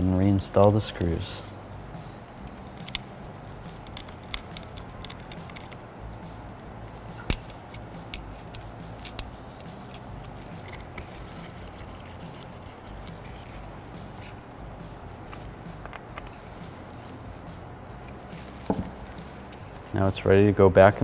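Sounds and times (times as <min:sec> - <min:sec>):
low steady hum: 0:00.0 - 0:21.0
screws and metal bracket clicking: 0:02.7 - 0:05.8, 0:06.9 - 0:13.6.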